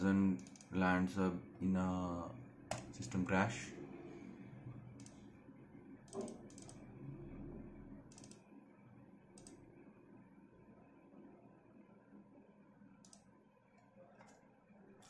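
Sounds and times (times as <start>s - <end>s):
low room hum: 0.0s - 15.0s
faint computer mouse clicks: 5.0s - 5.2s, 8.1s - 8.4s, 9.4s - 9.6s, 13.0s - 14.4s.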